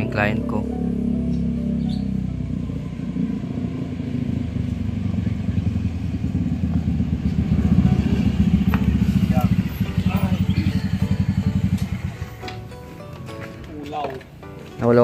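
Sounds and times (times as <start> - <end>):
small motorcycle engine running: 0.6 - 12.4.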